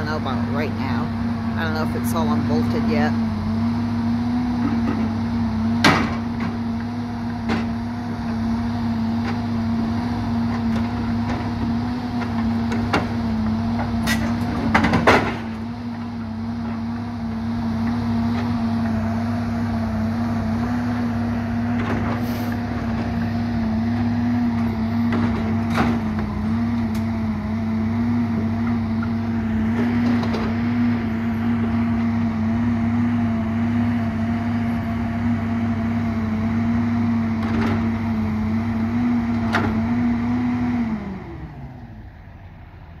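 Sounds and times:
diesel engine running: 0.0s - 43.0s.

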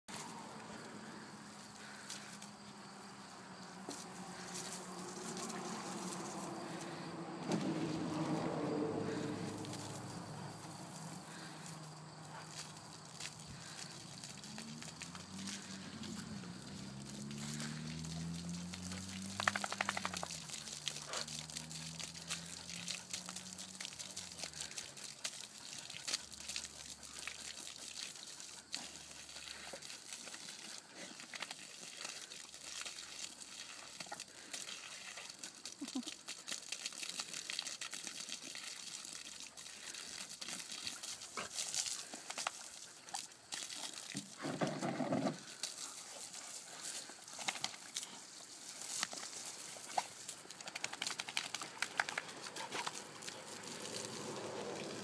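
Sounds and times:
garden hose spraying water: 0.1s - 55.0s
dogs treading through puddles: 3.7s - 55.0s
dogs snapping at spray: 17.6s - 24.6s, 47.3s - 48.1s, 48.9s - 54.2s.

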